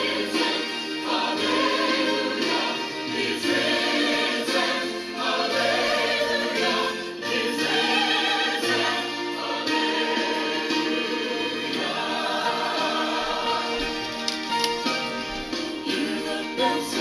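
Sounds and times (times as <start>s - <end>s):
choir singing church music: 0.0s - 17.0s.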